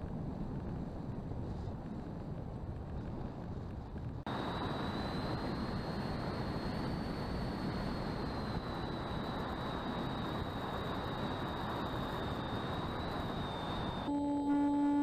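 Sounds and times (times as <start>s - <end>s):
wind rush on microphone: 0.0s - 14.1s
electric motor whine: 4.3s - 15.0s.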